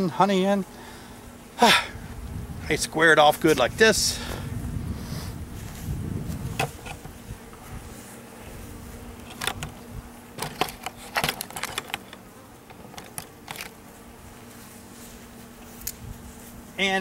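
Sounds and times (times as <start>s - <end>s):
bees buzzing: 0.0s - 17.0s
sharp clicks and knocks: 10.4s - 13.8s.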